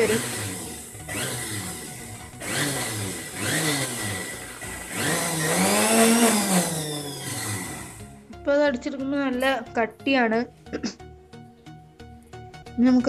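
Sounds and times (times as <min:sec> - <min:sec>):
mixer grinder motor pulsing: 0:00.0 - 0:08.3.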